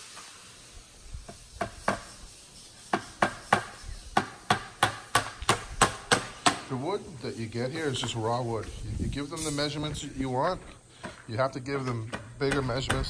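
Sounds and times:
hammer knocking on board: 12.1 - 13.0.

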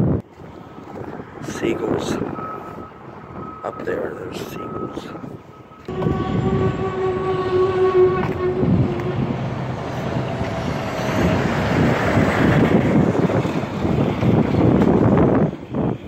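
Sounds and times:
traffic noise: 0.0 - 16.0
horn steady tone: 4.6 - 11.3.

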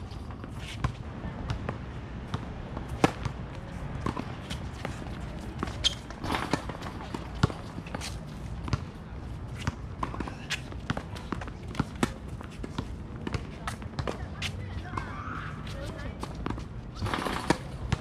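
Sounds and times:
balls bouncing on hard court: 0.4 - 18.0
tennis balls struck by racquets: 2.4 - 3.4.

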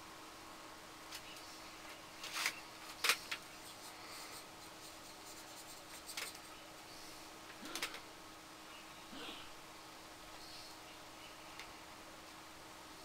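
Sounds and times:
faint hum: 0.0 - 13.0
paintbrush stroking paper: 3.6 - 6.6.

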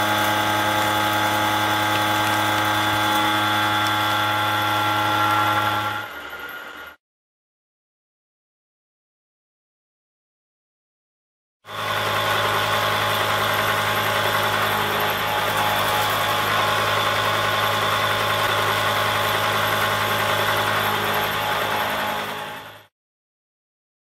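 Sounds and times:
milling cutter machining steel: 0.0 - 7.0, 11.7 - 22.9.

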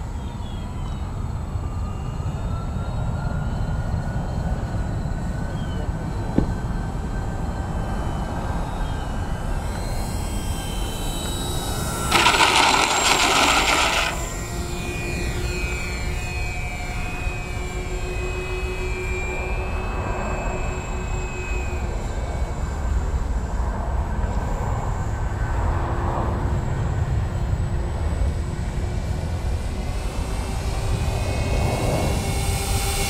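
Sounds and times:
model plane motors whining: 7.2 - 23.8.

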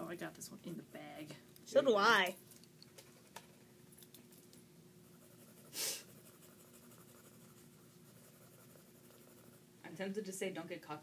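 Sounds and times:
pencil scratching on paper: 5.0 - 9.6.

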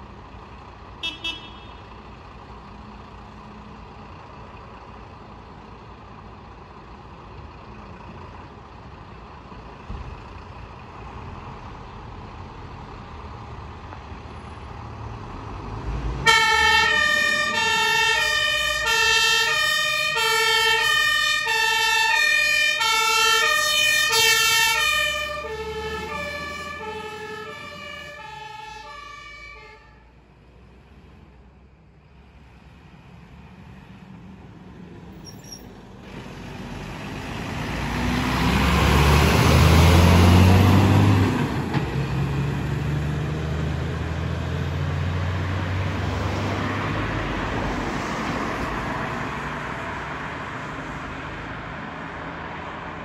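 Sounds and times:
two-tone fire engine siren: 16.2 - 30.2.

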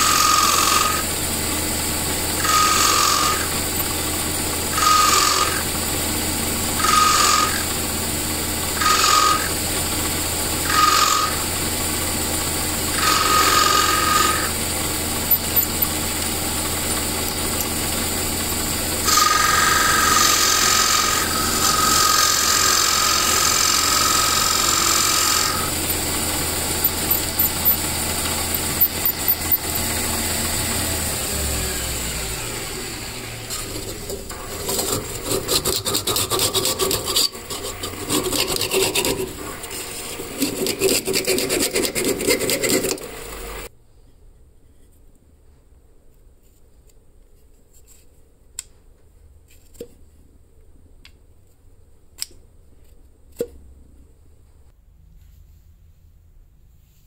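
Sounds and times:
lathe motor hum: 0.0 - 43.7
turning tool cutting with whine: 0.0 - 43.7.

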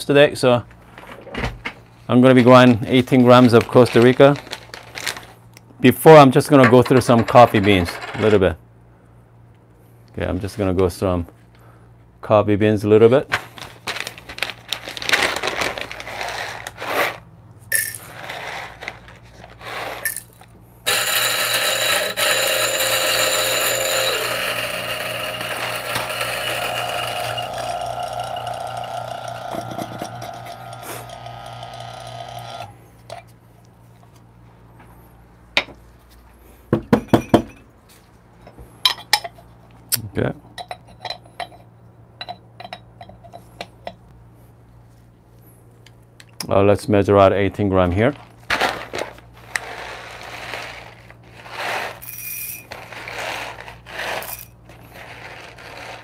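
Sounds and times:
coffee grinder motor grinding: 20.9 - 32.8, 49.4 - 56.0.

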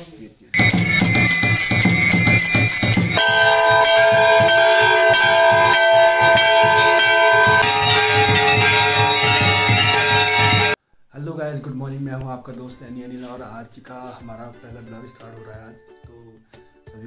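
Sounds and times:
drum beat: 0.6 - 10.8
temple bells clanging: 0.6 - 10.8.

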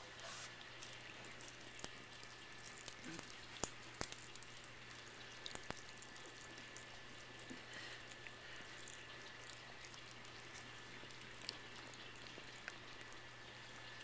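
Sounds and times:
popping candy crackling: 1.3 - 6.9.

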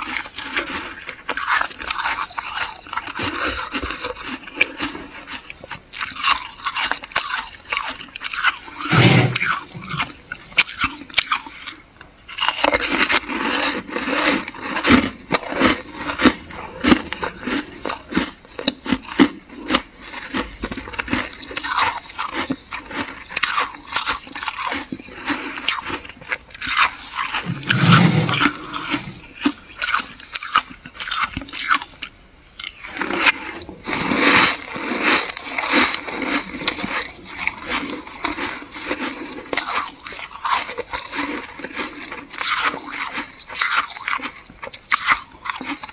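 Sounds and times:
frost crunching: 21.6 - 31.8.

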